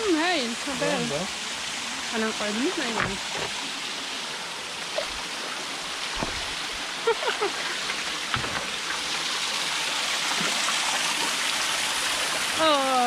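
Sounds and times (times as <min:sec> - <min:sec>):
stream splashing over rocks: 0:00.0 - 0:13.0
soft knocks: 0:02.9 - 0:03.6, 0:06.2 - 0:06.6.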